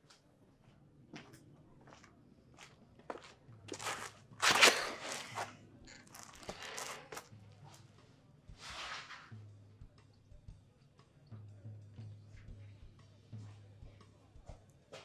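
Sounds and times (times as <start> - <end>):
footsteps: 0.0 - 7.8
clothes rustling and scraping: 3.8 - 7.9, 8.6 - 9.3.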